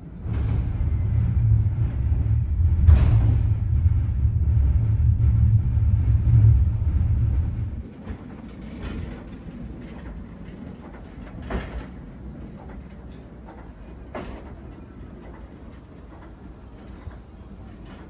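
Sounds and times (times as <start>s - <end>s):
funicular car heavy rumble: 0.0s - 18.0s
funicular rolling on rails: 0.0s - 18.0s
wheel clacks on track: 8.0s - 18.0s.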